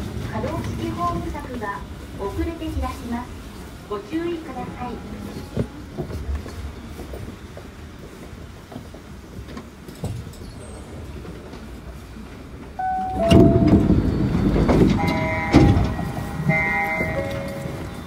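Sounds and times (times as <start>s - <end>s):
train doors opening: 4.1s - 18.0s
short beeping tone: 12.8s - 14.4s.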